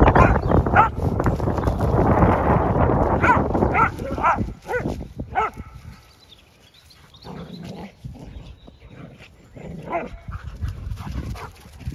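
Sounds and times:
dog barking: 0:00.0 - 0:01.0, 0:03.2 - 0:05.8, 0:09.9 - 0:10.3
wind rumble on microphone: 0:00.0 - 0:06.3, 0:07.2 - 0:11.9.

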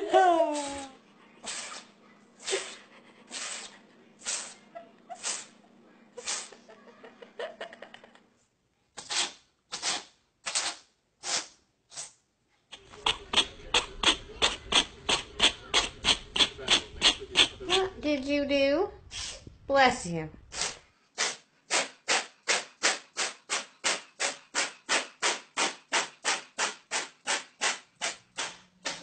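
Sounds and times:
cats sneezing: 0:00.5 - 0:05.6, 0:06.2 - 0:06.7, 0:20.5 - 0:27.4.

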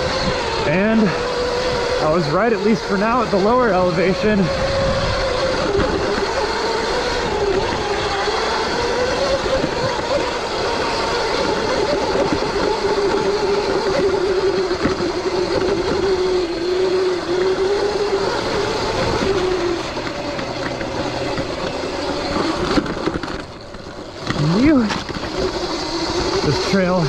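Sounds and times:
electric motor and chain whine: 0:00.0 - 0:27.0
wind rush: 0:03.7 - 0:22.9.

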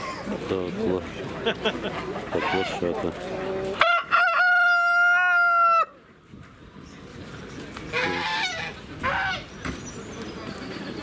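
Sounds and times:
rooster crowing: 0:03.8 - 0:05.9.

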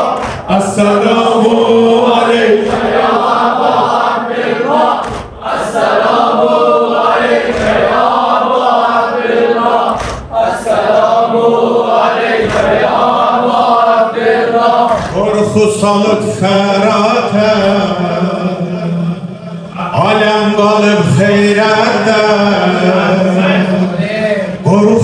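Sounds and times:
group of voices chanting: 0:00.0 - 0:15.8, 0:22.7 - 0:25.0.

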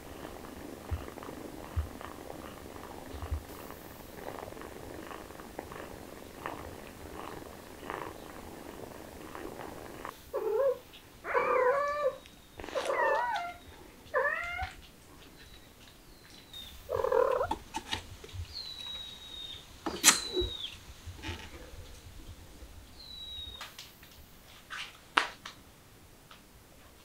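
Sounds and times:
cat purring: 0:00.0 - 0:24.1
cat meowing: 0:10.4 - 0:12.2, 0:12.8 - 0:14.8.

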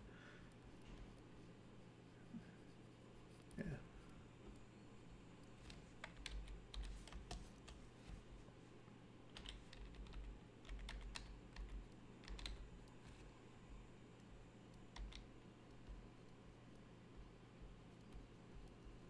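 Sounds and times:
keyboard keys clicking: 0:05.6 - 0:07.8, 0:09.3 - 0:13.2, 0:14.8 - 0:16.0.

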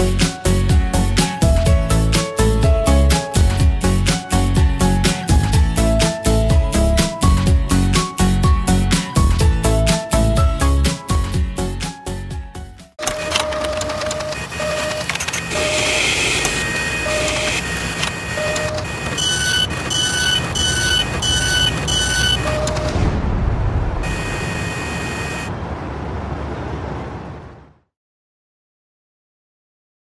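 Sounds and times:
electronic beeps: 0:13.0 - 0:23.3, 0:24.0 - 0:25.5
machine whir and rumble: 0:13.0 - 0:27.3.

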